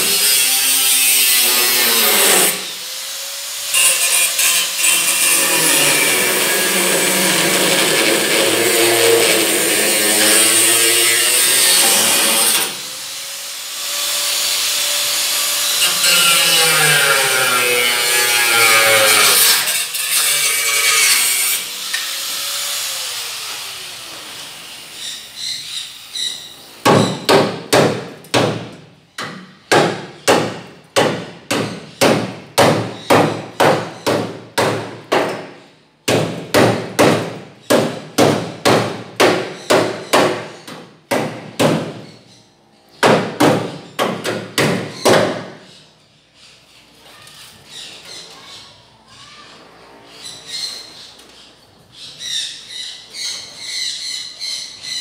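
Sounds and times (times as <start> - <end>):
power tool noise: 0.0 - 26.7.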